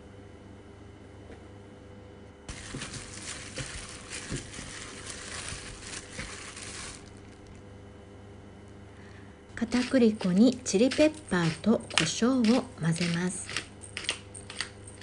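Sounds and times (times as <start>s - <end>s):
wet squishing of hand mixing batter: 2.5s - 7.6s.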